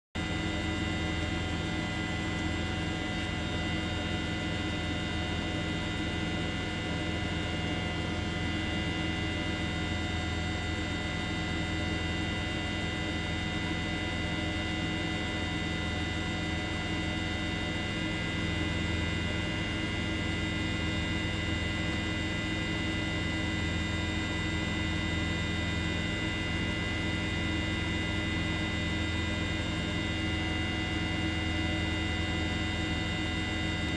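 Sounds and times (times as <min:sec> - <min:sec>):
steady hum with low drone: 0:00.2 - 0:33.9.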